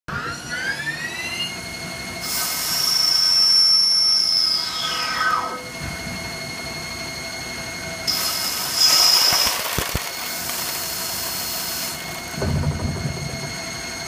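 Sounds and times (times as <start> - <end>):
lathe spindle whine: 0.1 - 14.0
hiss of metal cutting: 2.2 - 5.6, 8.1 - 12.4.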